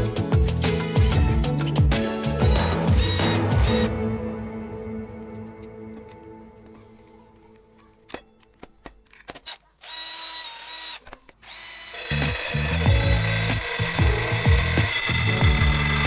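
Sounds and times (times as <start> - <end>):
cordless drill running: 2.4 - 3.9, 9.4 - 16.0
saw blade cutting wood: 2.4 - 3.9, 9.4 - 16.0
clicks of parts handled: 7.8 - 9.7.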